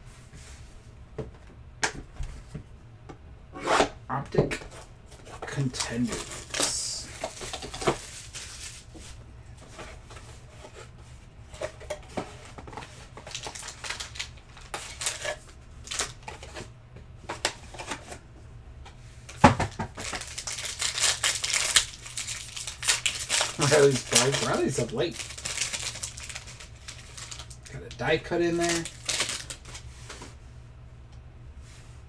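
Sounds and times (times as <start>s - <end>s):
plastic and cardboard crinkling: 4.7s - 10.9s, 11.5s - 16.7s, 19.3s - 30.3s
foil pack ripped open: 13.2s - 16.2s, 20.0s - 27.6s, 28.5s - 29.8s.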